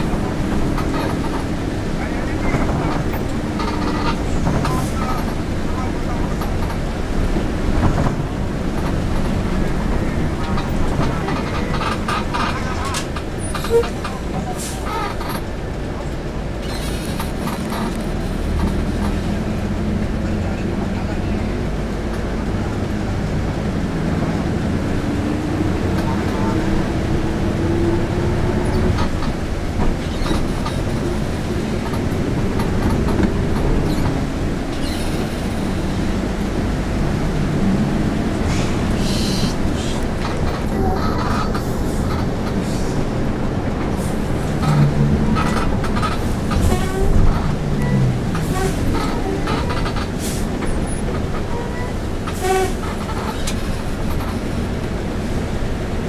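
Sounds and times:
bus engine rumble: 0.0 - 56.0
tyres on wet road: 0.0 - 56.0.

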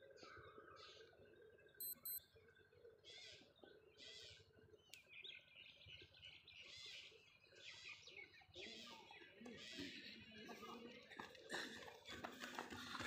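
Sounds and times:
birds chirping: 0.0 - 13.0
short high electronic beeps: 1.8 - 2.2.

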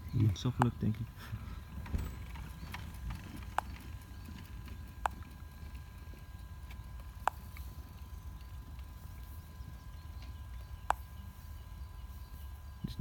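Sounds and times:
faint high whine: 0.0 - 13.0
sharp clicks: 0.2 - 1.0, 1.8 - 9.4.

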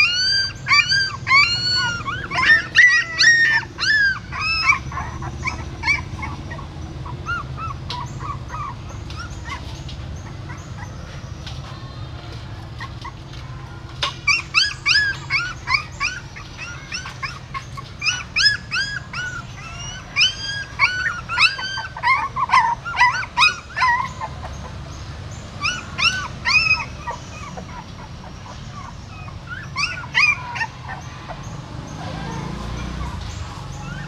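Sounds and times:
puppies whimpering and yelping: 0.0 - 34.0.

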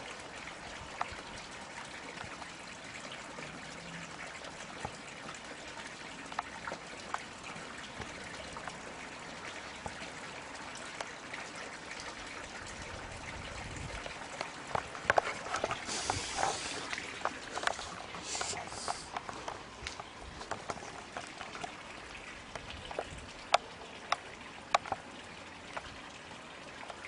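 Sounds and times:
background hiss: 15.2 - 19.8.

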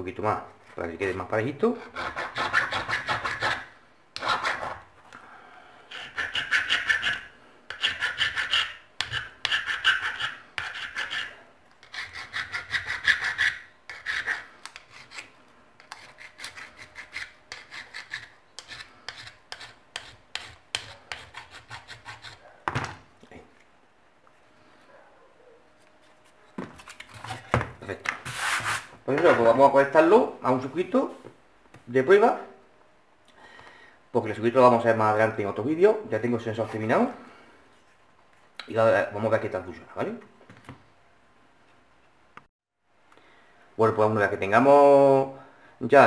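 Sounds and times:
hand file rasping: 1.9 - 4.8, 5.9 - 22.5.

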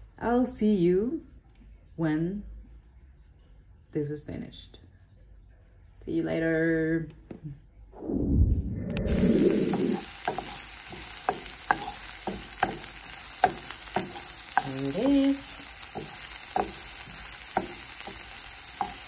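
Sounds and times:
vegetables sizzling in oil: 9.1 - 19.0
wooden spatula scraping a pan: 9.1 - 19.0.

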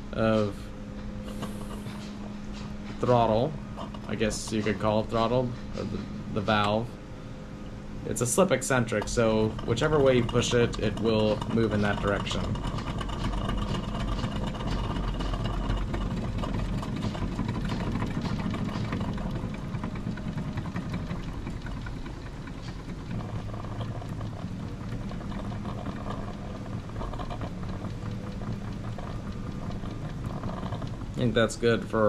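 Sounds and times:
steam engine chuffing and hissing: 0.0 - 32.0.

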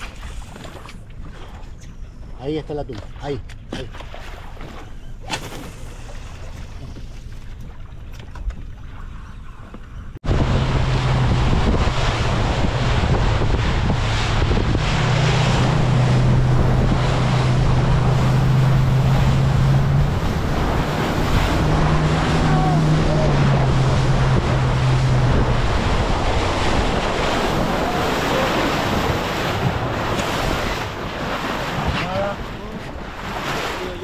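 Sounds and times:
boat motor humming: 0.0 - 34.0
water rushing and waves: 0.0 - 34.0
wind buffeting: 10.1 - 34.0.

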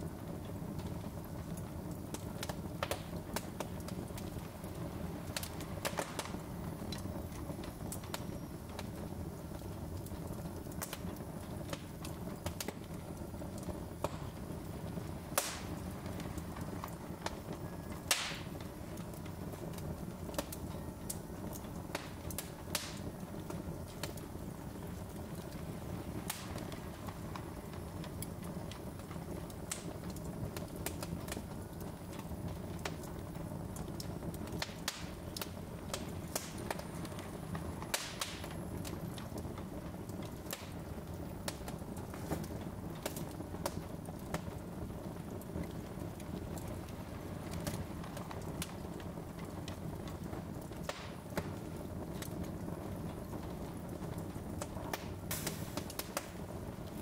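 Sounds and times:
flames rushing: 0.0 - 57.0
logs crackling and popping: 0.0 - 57.0
loud wood snaps: 15.4 - 15.8, 18.1 - 18.5, 22.0 - 23.0, 34.6 - 36.8, 37.9 - 38.5, 50.8 - 51.5.

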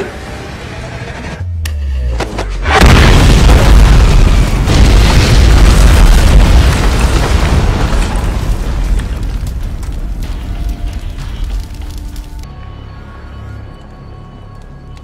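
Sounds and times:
heavy bomb blast: 2.7 - 11.6
burning and flying debris: 2.7 - 12.5.

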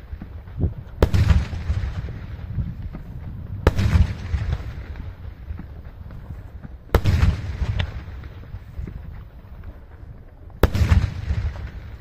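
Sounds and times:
low rumble of firework bursts: 0.0 - 12.0
firework bang: 1.0 - 5.0, 10.6 - 12.0.

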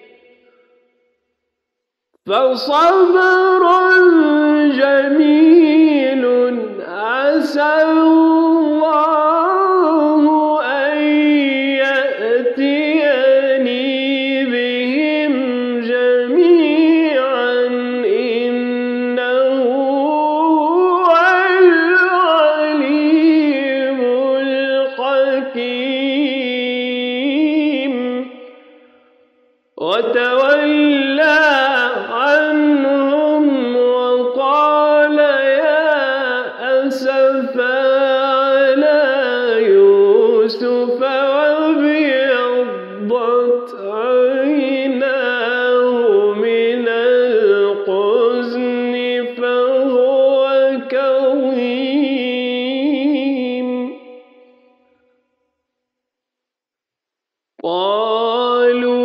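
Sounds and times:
man chanting melodic recitation: 2.3 - 28.8, 29.8 - 54.7, 57.6 - 59.0.

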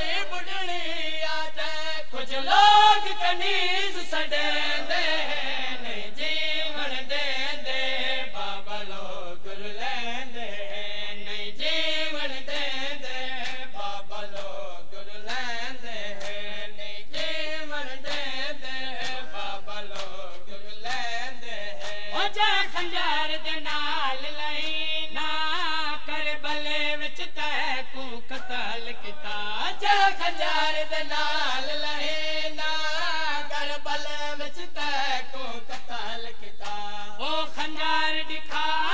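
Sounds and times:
man chanting a lament: 0.0 - 38.9
hands slapping chests: 12.5 - 14.6, 16.1 - 22.9, 34.8 - 36.9, 38.4 - 38.9.

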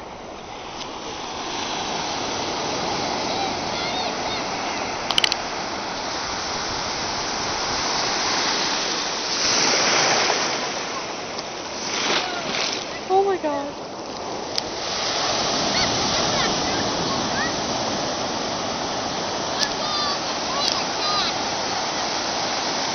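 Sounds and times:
ocean surf breaking: 0.0 - 22.9
sharp clicks: 5.1 - 5.5.

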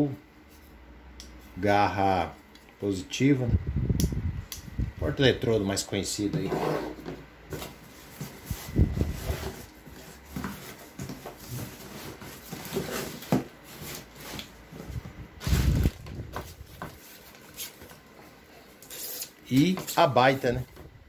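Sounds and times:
cardboard packaging rustling: 7.5 - 20.7.

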